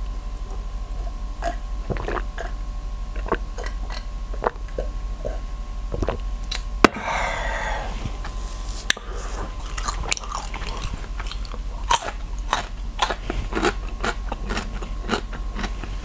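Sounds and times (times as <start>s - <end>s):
person gulping swallowing: 1.4s - 6.2s
breathy exhale: 6.8s - 9.5s.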